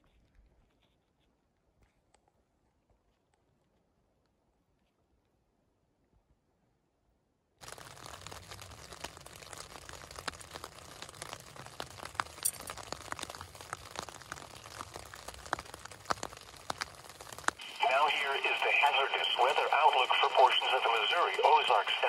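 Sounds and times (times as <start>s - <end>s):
crinkling and rustling: 7.6s - 17.7s.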